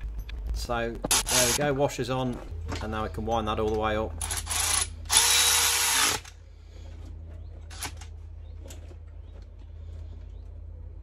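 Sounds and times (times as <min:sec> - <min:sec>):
faint low hum: 0:00.0 - 0:11.0
power ratchet running: 0:04.2 - 0:06.4.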